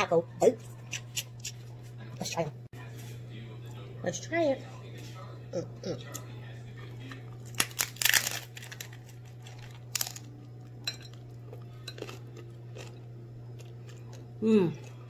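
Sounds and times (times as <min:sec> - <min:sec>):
steady low hum: 0:00.0 - 0:15.0
chewing crunches: 0:06.0 - 0:15.0
taco shell crunching: 0:06.8 - 0:14.3.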